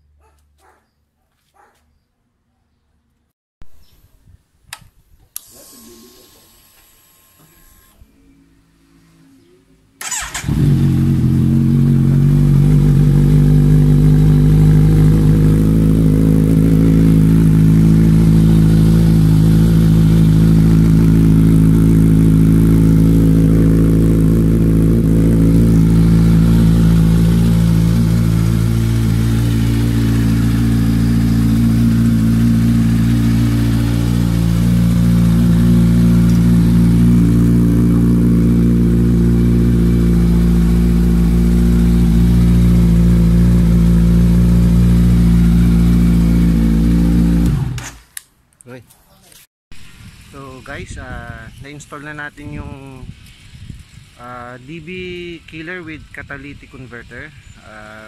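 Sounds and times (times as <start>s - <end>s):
motorcycle engine idling: 10.0s - 47.5s.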